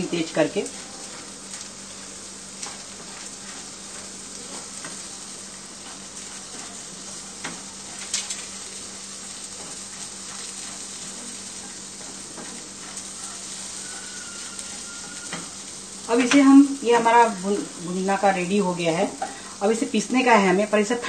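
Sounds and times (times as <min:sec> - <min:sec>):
food sizzling in a frying pan: 0:00.0 - 0:21.0
wooden spatula scraping a pan: 0:02.6 - 0:05.0, 0:05.8 - 0:17.2.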